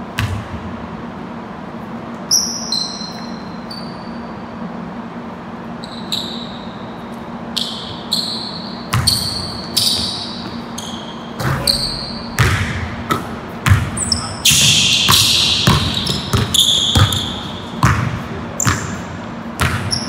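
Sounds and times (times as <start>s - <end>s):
sneakers squeaking: 0.1s - 0.7s, 1.8s - 4.6s, 5.6s - 20.0s
basketball bouncing on wood floor: 0.2s - 0.6s, 8.9s - 10.6s, 11.4s - 19.0s, 19.6s - 20.0s.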